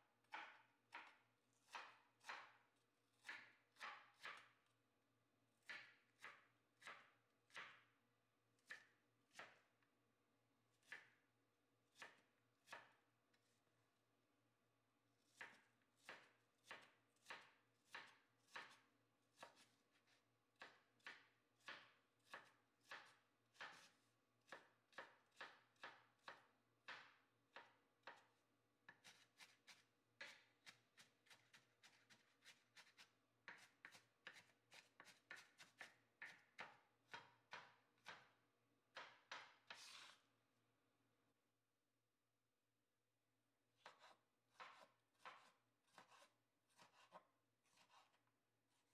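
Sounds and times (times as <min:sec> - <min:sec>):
knife chopping on wooden board: 0:00.2 - 0:02.6, 0:03.2 - 0:04.5, 0:05.6 - 0:07.8, 0:08.6 - 0:09.6, 0:10.8 - 0:11.1, 0:11.9 - 0:13.0, 0:15.3 - 0:18.8, 0:19.4 - 0:19.8, 0:20.6 - 0:28.3, 0:28.9 - 0:38.3, 0:38.9 - 0:40.2, 0:43.8 - 0:48.1.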